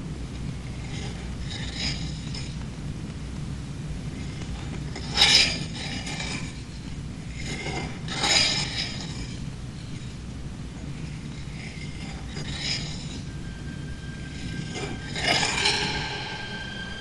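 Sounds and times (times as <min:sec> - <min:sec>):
low steady hum: 0:00.0 - 0:17.0
steel blade scraping on whetstone: 0:11.1 - 0:17.0.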